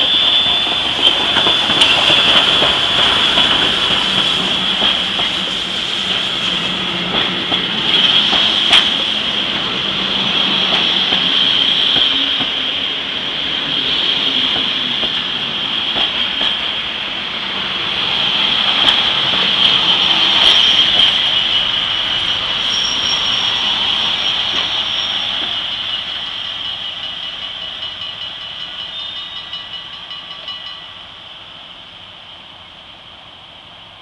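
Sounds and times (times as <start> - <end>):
wheels clicking over rail joints: 0.0 - 9.8
steel wheels squealing: 0.0 - 12.9, 17.9 - 30.9.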